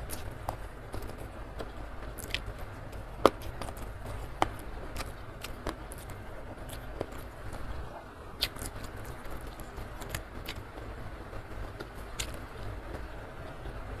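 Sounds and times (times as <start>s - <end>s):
wet mouth clicks and chewing: 0.0s - 7.6s, 8.4s - 10.8s
fingers picking at food: 0.0s - 7.7s, 8.4s - 10.9s, 11.6s - 13.1s
low steady rumble: 0.0s - 14.0s.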